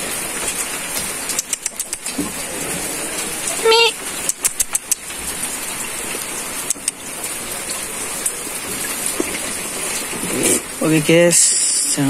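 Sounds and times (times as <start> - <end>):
steady rain hiss: 0.0 - 12.0
sharp clicks: 1.3 - 2.2, 4.2 - 5.1, 6.7 - 7.0.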